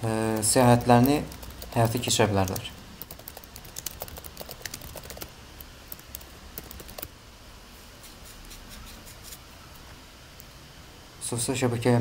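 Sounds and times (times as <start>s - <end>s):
typing on computer keyboard: 0.3s - 5.3s, 5.9s - 7.1s.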